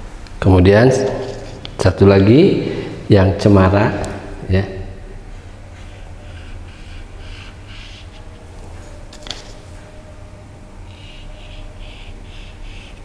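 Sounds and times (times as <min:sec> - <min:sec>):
steady low hum: 0:00.0 - 0:13.0
paintbrush scratchy strokes: 0:05.3 - 0:10.0, 0:10.8 - 0:13.0.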